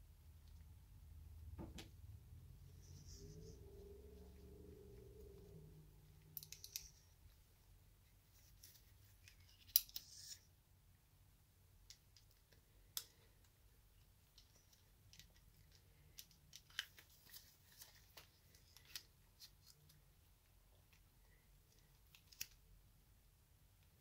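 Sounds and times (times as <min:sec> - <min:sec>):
small steel parts clicking: 0:06.3 - 0:07.1, 0:09.2 - 0:10.3.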